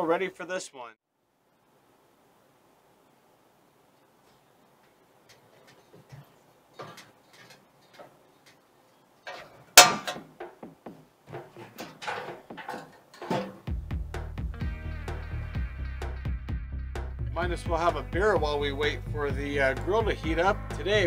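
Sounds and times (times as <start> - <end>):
metal clattering: 5.3 - 8.6, 9.2 - 13.7
metal grill clicks and knocks: 5.3 - 8.6, 9.2 - 10.7, 11.3 - 13.7
grill lid clanking: 5.6 - 8.2, 9.3 - 10.7, 11.3 - 13.7.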